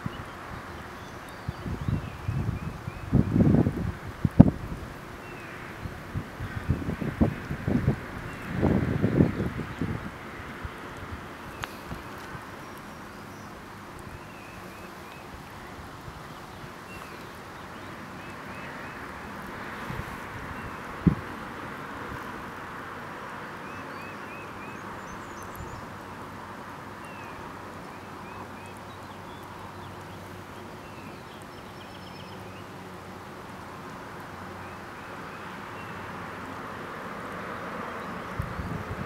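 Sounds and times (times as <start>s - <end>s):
distant songbird chirps: 0.0s - 3.7s, 4.4s - 33.2s, 33.8s - 39.0s
steady hiss: 0.0s - 39.0s.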